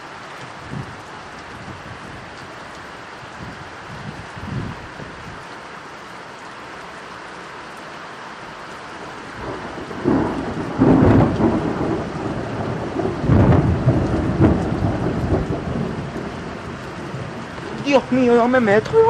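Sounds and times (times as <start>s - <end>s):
steady rain falling: 0.0s - 19.0s
thunderclap rumbling: 0.6s - 2.2s, 9.2s - 19.0s.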